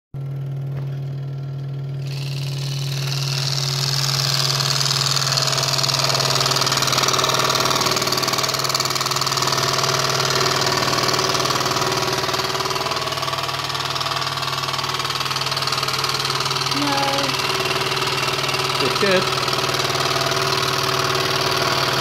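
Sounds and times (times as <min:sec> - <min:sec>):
scroll saw motor hum: 0:01.8 - 0:22.0
saw blade rasping through wood: 0:02.0 - 0:12.8.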